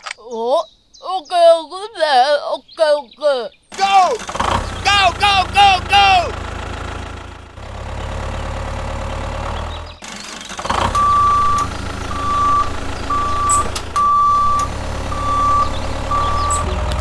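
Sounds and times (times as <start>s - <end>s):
high electronic beeps: 11.0s - 16.8s.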